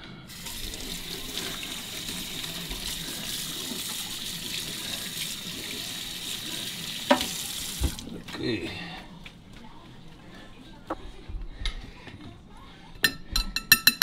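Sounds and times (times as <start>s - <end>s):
tap running water into sink: 0.3s - 8.3s.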